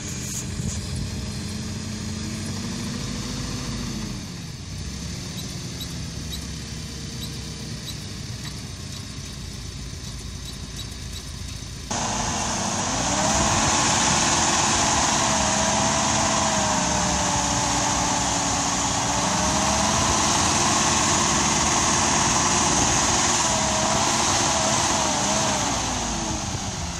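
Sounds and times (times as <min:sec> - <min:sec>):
diesel engine under load: 0:00.0 - 0:26.9
hissing slurry jet spraying: 0:11.9 - 0:26.9.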